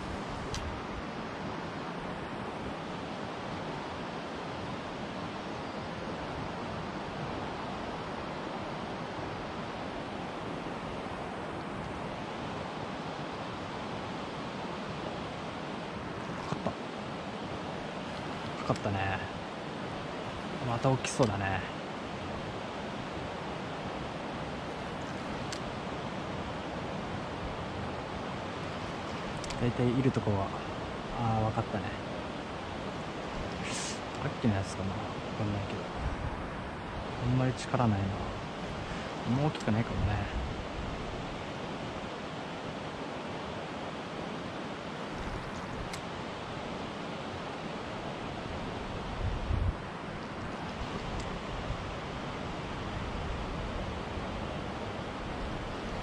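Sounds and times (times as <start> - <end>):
flowing river water: 0.0 - 56.0.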